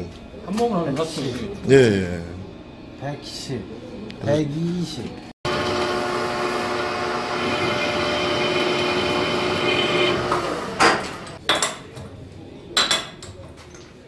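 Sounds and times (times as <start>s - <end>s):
metal lathe whine: 5.5s - 11.4s.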